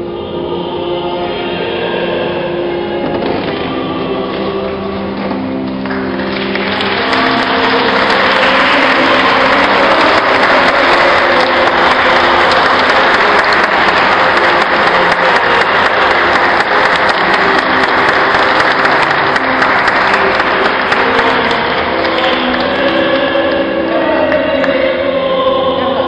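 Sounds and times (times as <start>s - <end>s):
crowd clapping: 5.1s - 24.8s.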